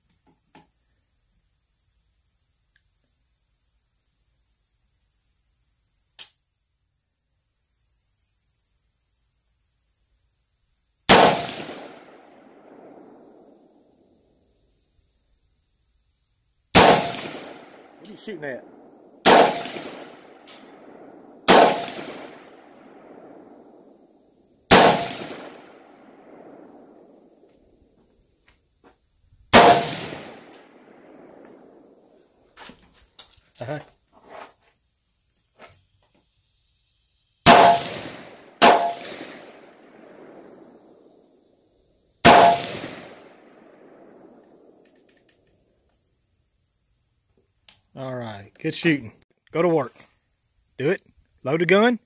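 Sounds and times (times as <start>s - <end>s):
rifle shots with echo: 11.1s - 13.5s, 16.8s - 24.0s, 24.7s - 27.4s, 29.5s - 32.0s, 37.5s - 41.0s, 42.2s - 44.8s.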